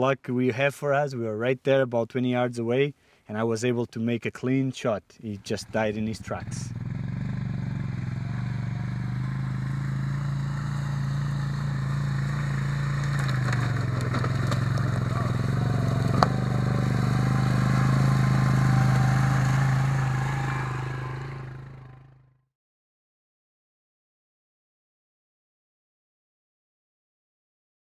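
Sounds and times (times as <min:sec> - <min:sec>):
atv engine running: 0:05.5 - 0:22.3.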